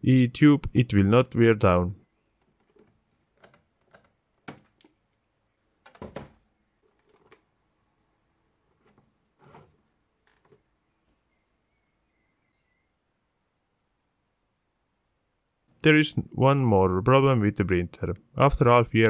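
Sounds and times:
plastic clicks and knocks: 2.4s - 5.1s, 5.8s - 7.5s.

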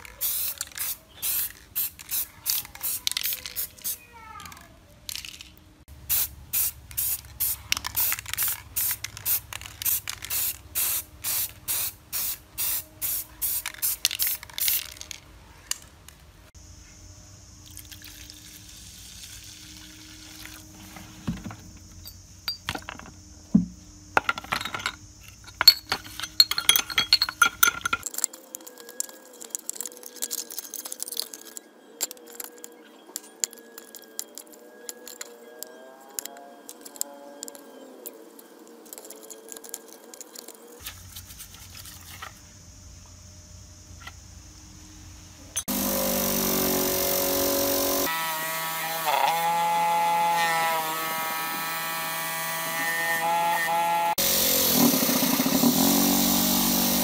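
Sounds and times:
spray can hissing bursts: 0.1s - 4.0s, 6.1s - 15.1s, 54.2s - 57.0s
knocks and scraping: 20.7s - 28.1s.

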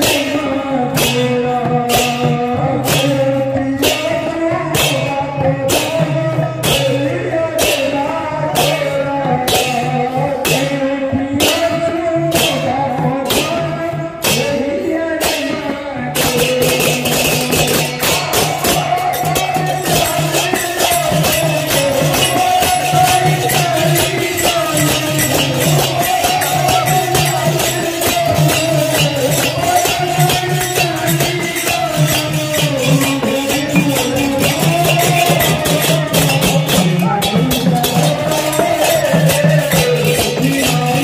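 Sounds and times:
hand cymbals clashing: 0.0s - 41.0s
hand drum: 0.0s - 41.0s
person singing a melody: 0.0s - 41.0s.

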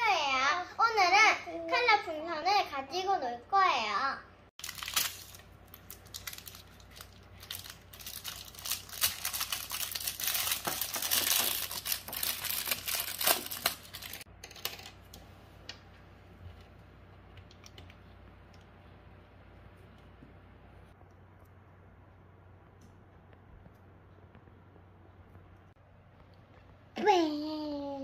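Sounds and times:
plastic wrapper crinkling and tearing: 4.6s - 14.8s.

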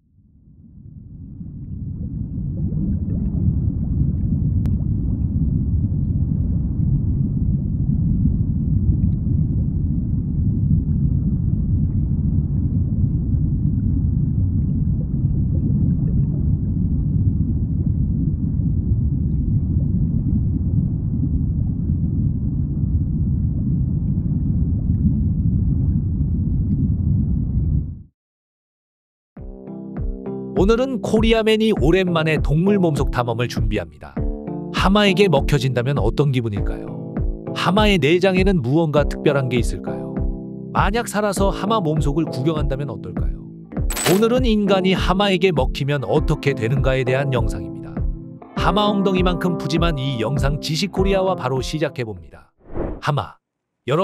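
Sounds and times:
stomach rumbling and gurgling: 0.6s - 28.0s.

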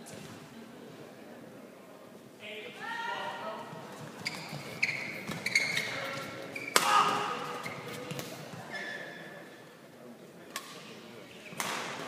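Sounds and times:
shoes squeaking on court mat: 4.0s - 9.3s.

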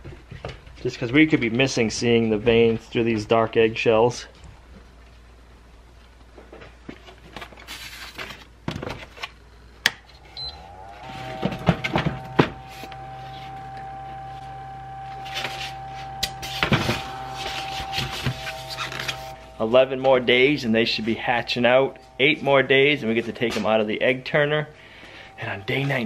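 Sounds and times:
small motor humming: 10.0s - 19.6s.

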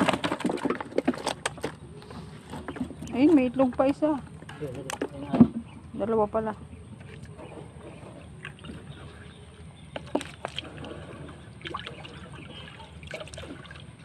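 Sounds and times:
short splashes and knocks: 0.0s - 1.8s, 9.9s - 14.0s
low steady rumble: 0.0s - 14.0s
water sloshing: 0.0s - 14.0s.

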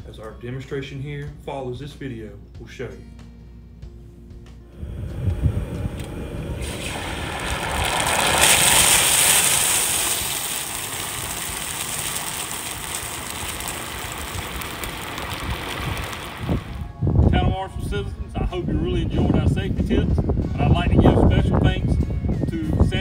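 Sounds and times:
hot oil sizzling hiss: 4.8s - 16.9s
wind rumble on microphone: 4.8s - 23.0s.

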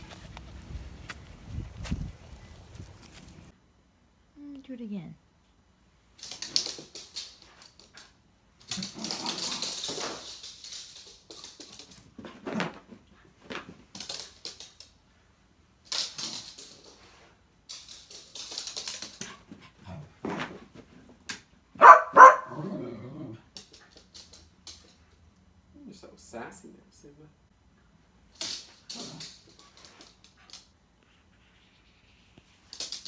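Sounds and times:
scuffling noises: 0.0s - 3.5s
dog barking: 21.8s - 22.8s.

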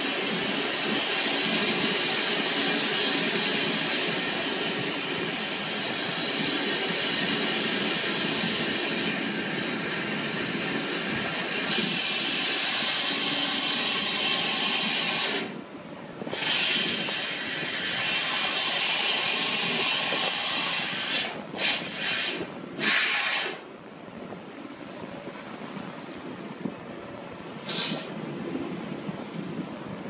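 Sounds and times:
loud hiss of deck winch: 0.0s - 15.6s, 16.2s - 23.7s, 27.6s - 28.2s.

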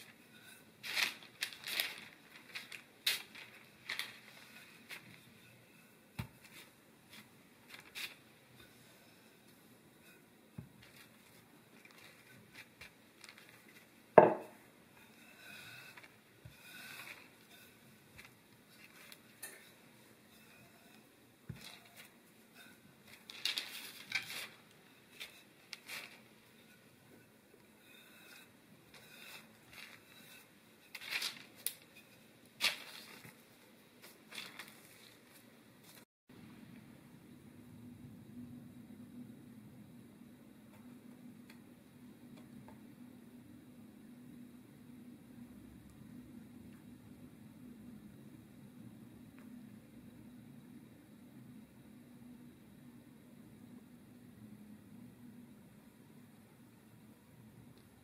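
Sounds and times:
parchment paper rustling: 0.0s - 5.5s, 6.2s - 9.0s, 10.8s - 14.3s, 15.0s - 26.8s, 27.9s - 36.1s
rolling pin rolling over dough: 0.0s - 34.4s.

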